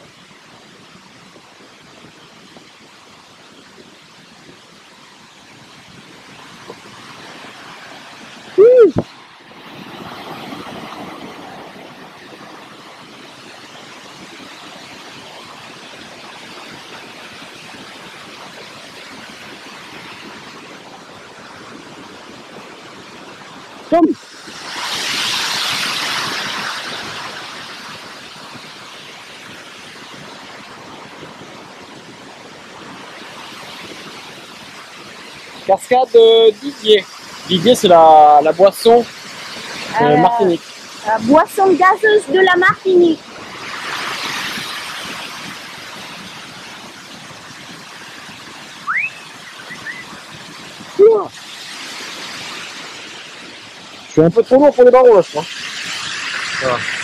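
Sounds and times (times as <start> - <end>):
waterfall rushing: 4.4 - 31.1, 31.9 - 57.0
rising whistled note: 48.8 - 50.1.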